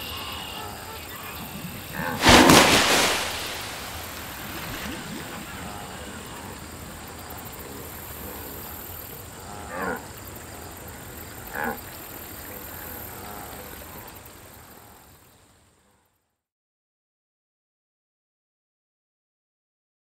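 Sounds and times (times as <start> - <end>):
steady background hiss: 0.0 - 15.9.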